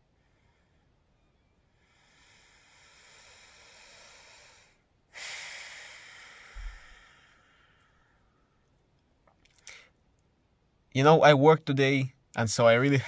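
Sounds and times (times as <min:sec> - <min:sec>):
man breathing through nose: 0:01.7 - 0:08.5, 0:09.6 - 0:10.0.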